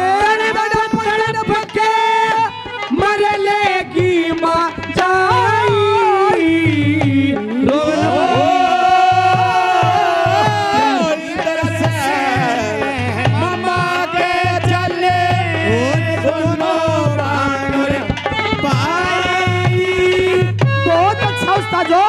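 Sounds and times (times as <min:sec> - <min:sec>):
hand drum beat: 0:00.0 - 0:22.0
melodic folk instrument tune: 0:10.4 - 0:22.0.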